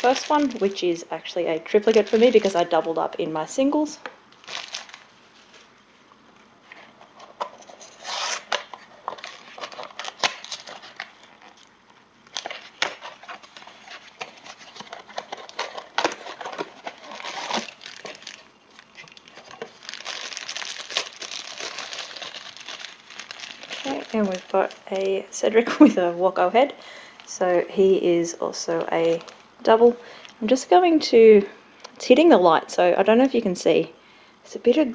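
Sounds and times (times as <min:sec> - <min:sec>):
foil bag crinkling and tearing: 0:00.0 - 0:03.0, 0:04.3 - 0:05.1, 0:07.9 - 0:11.7, 0:12.3 - 0:25.9, 0:28.8 - 0:30.0.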